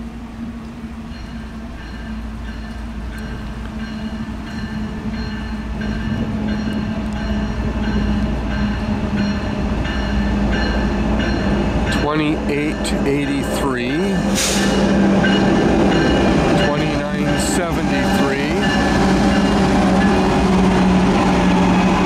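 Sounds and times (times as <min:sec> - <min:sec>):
diesel locomotive rumble: 0:00.0 - 0:22.0.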